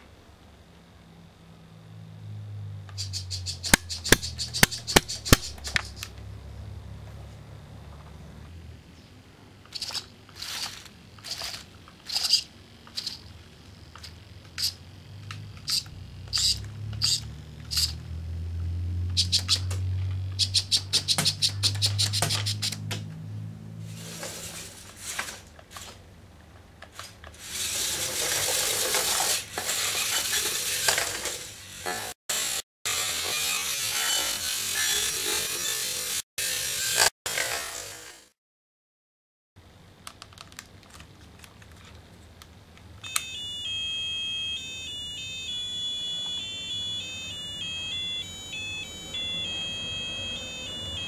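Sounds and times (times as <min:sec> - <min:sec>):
low motor hum: 0:00.8 - 0:09.2, 0:12.7 - 0:20.5
sharp mechanism clicks: 0:02.9 - 0:06.2, 0:09.7 - 0:13.3, 0:13.9 - 0:18.0, 0:20.4 - 0:22.8
robot wheels on tile floor: 0:02.9 - 0:06.3, 0:09.6 - 0:18.1, 0:19.1 - 0:22.8, 0:23.9 - 0:26.0, 0:26.8 - 0:38.3, 0:43.0 - 0:51.0.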